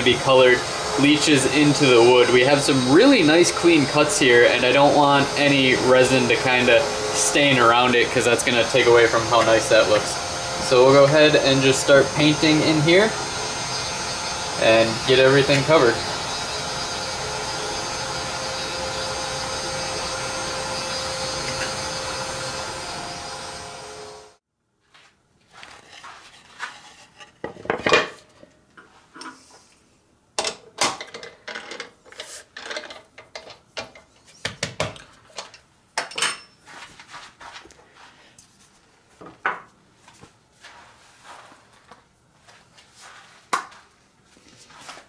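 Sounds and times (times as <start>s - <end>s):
motor hum: 0.0s - 24.4s
wood and tools knocking: 39.2s - 39.7s.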